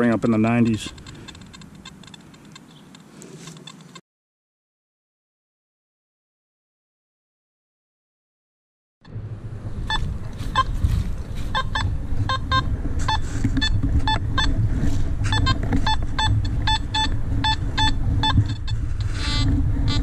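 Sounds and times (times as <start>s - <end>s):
metal detector beeps: 0.0s - 2.9s, 9.9s - 14.6s, 15.2s - 20.0s
steady low rumble: 9.0s - 20.0s.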